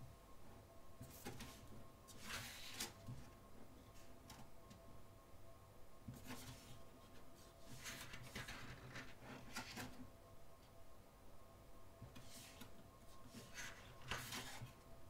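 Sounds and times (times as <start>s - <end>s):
pages turning rustle: 13.3s - 14.7s.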